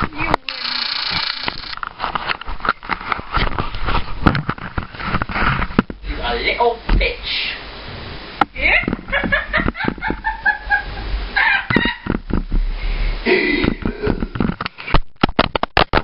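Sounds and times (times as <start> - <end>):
woman laughing and squealing: 8.6 - 12.1.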